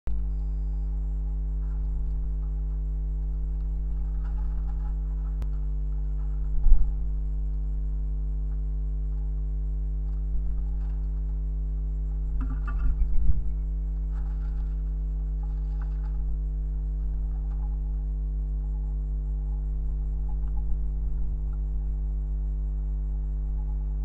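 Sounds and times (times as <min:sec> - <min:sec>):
steady electrical hum: 0:00.1 - 0:24.0
dove wing flutters: 0:03.7 - 0:05.4.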